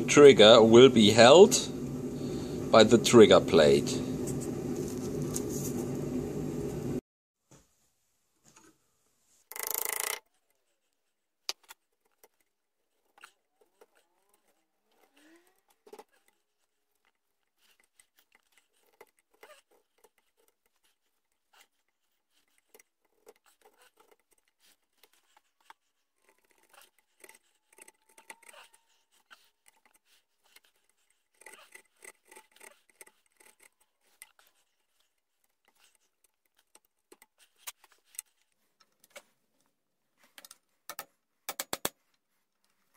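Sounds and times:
chisel carving wood: 17.7 - 38.2.

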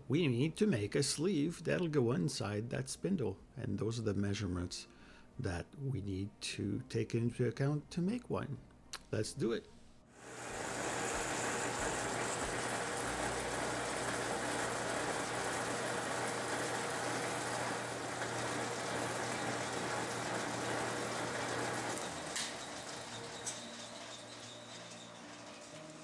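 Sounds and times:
drill cutting hiss: 10.2 - 24.9
lathe motor hum: 10.2 - 26.0.

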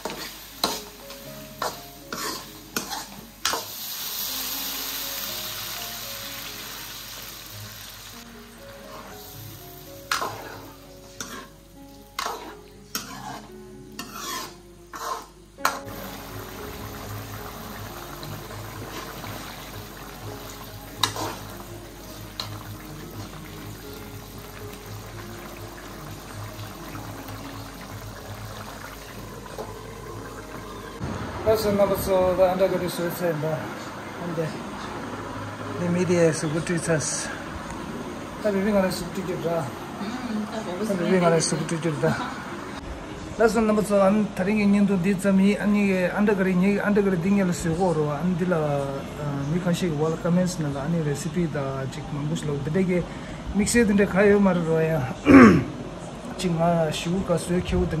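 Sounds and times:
spoon scraping metal pan: 0.0 - 1.0, 1.6 - 3.7, 10.1 - 11.6, 12.2 - 15.9, 21.0 - 21.5
water sizzling in hot pan: 0.0 - 42.8
steel ladle stirring: 1.6 - 3.7, 10.1 - 11.6, 12.2 - 15.9.

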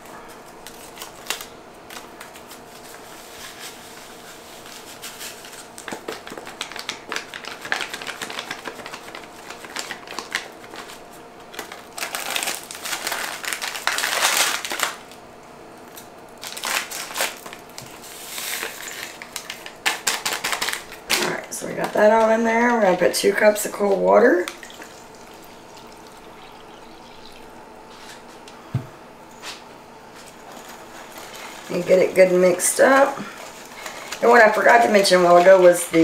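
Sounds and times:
faint steady hum: 0.0 - 36.0
paper packets crinkling and rustling: 0.6 - 15.2, 16.4 - 22.3, 30.1 - 36.0.

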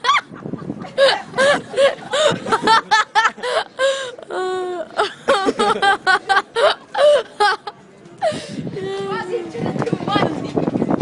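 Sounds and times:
person laughing: 0.0 - 7.7.

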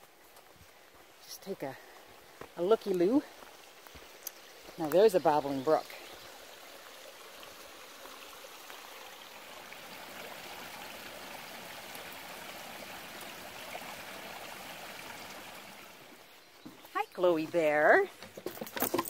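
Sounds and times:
brook water trickling over stones: 0.0 - 19.0.

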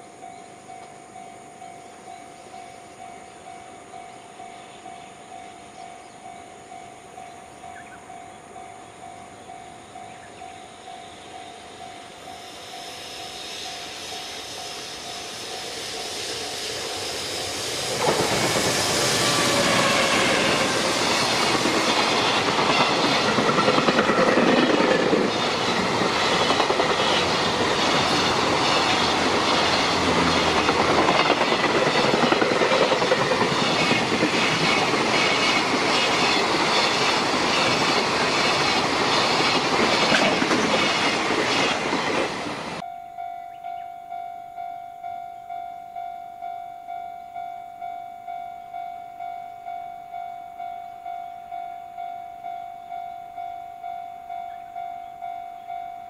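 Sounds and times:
freight train passing: 0.0 - 56.0
wheels clacking over rail joints: 17.9 - 42.8.

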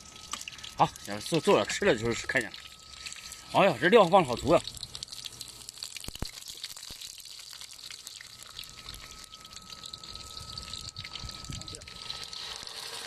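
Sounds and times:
thin high tone: 0.0 - 4.9, 7.5 - 13.0
food sizzling in hot oil: 0.0 - 13.0.

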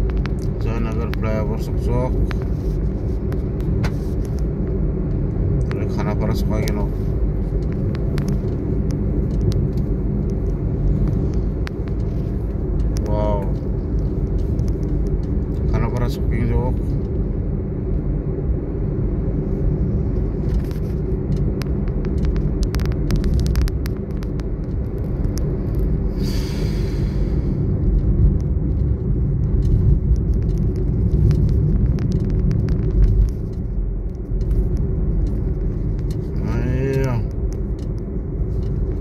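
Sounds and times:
road and engine rumble in car: 0.0 - 39.0.

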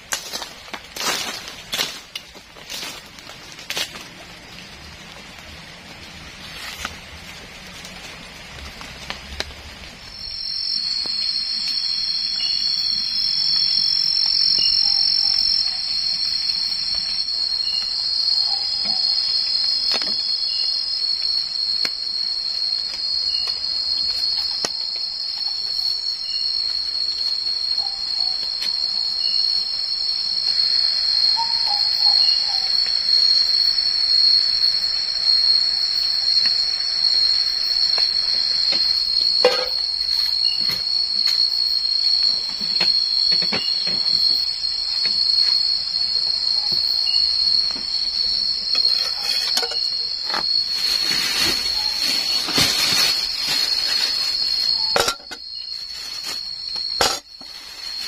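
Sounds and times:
crickets chirping: 0.0 - 58.0
rain patter: 0.1 - 14.5.

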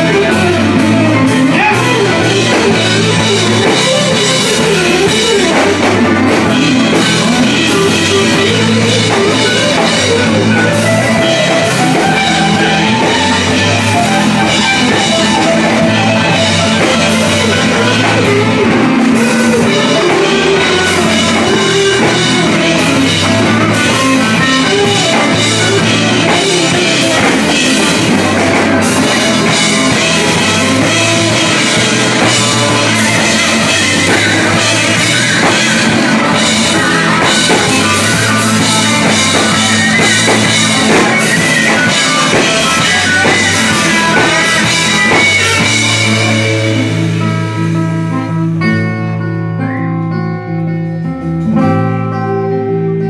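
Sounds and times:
drum kit beat: 0.0 - 48.9
strummed guitars and banjo: 0.0 - 53.0.

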